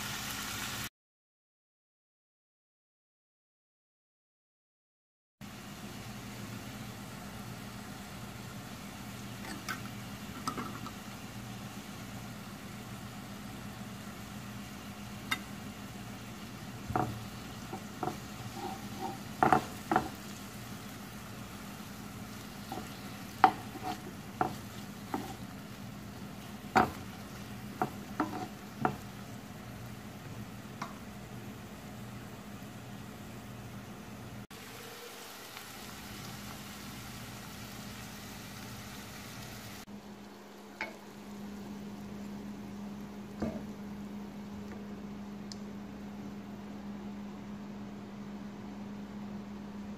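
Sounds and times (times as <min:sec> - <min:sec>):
vegetables sizzling in oil: 0:00.0 - 0:00.9, 0:05.4 - 0:44.6
spatula knocking against pan: 0:19.0 - 0:20.2, 0:22.7 - 0:25.4, 0:26.7 - 0:29.1.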